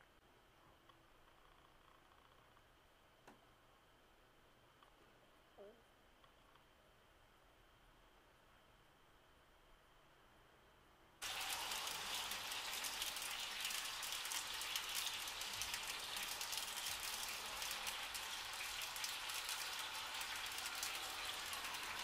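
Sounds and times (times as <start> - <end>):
chicken sizzling and crackling: 11.2 - 22.0.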